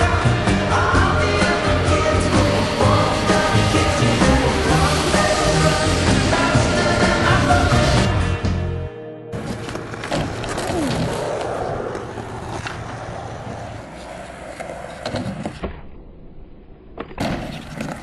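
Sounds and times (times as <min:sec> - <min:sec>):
skateboard wheels rolling on concrete: 0:00.0 - 0:08.6, 0:09.3 - 0:18.0
skateboard clacking on ground: 0:09.4 - 0:15.6.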